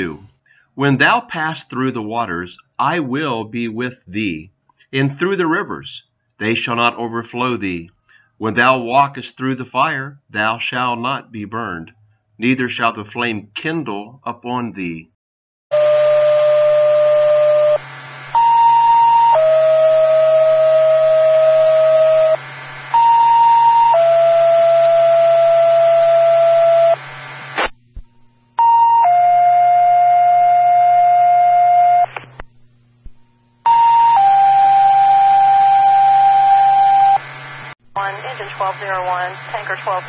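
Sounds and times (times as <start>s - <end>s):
low radio hum: 15.8s - 28.6s, 31.4s - 40.0s.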